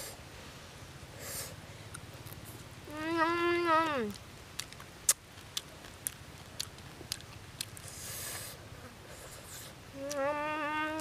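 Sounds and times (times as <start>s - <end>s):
short hiss: 1.2s - 1.6s
person humming mmm: 2.9s - 4.2s, 9.9s - 11.0s
mouth clicks and smacks chewing: 4.0s - 8.2s.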